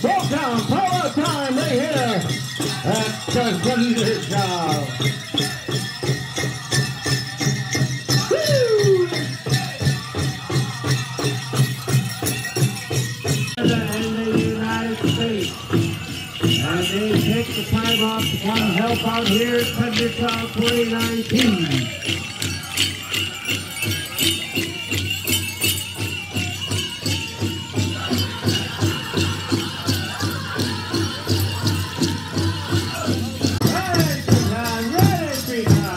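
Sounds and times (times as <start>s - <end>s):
group of singers singing: 0.0s - 35.9s
metal jingles: 0.0s - 35.9s
big drum steady beat: 27.4s - 35.9s.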